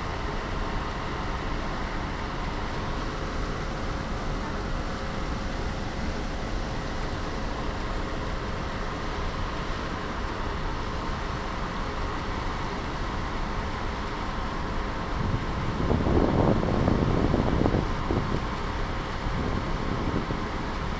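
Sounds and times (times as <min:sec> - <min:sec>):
water churning along hull: 0:00.0 - 0:20.9
wind buffeting microphone: 0:15.0 - 0:20.9.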